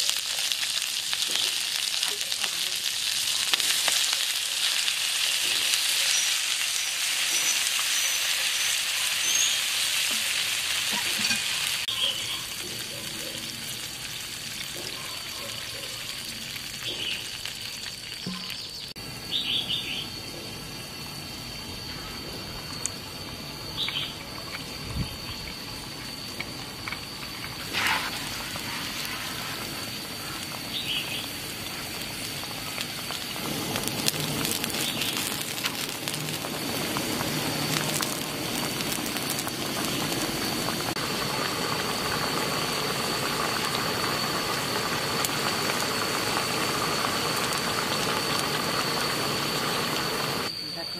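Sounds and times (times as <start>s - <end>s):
bird chirps: 18.3s - 20.1s
liquid simmering and bubbling: 21.1s - 50.5s
cola pouring into a pan: 27.0s - 50.5s.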